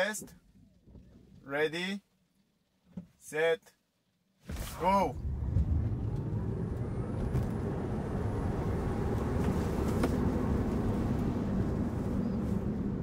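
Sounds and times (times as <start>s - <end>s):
road rumble and tyre noise: 4.5s - 13.0s.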